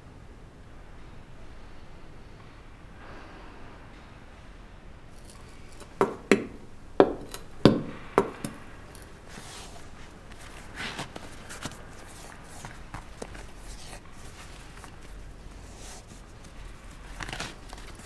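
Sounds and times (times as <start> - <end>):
skate blades knocking on hard floor: 5.9 - 8.6.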